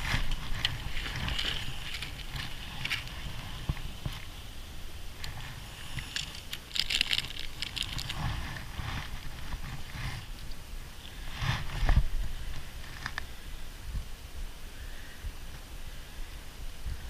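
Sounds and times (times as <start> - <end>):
nylon backpack rustling: 0.0 - 10.5
plastic packet crinkling: 6.0 - 9.2.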